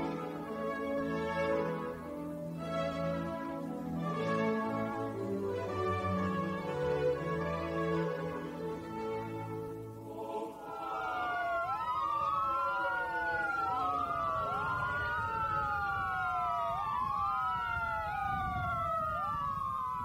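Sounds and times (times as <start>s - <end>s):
sirens wailing: 0.0s - 20.0s.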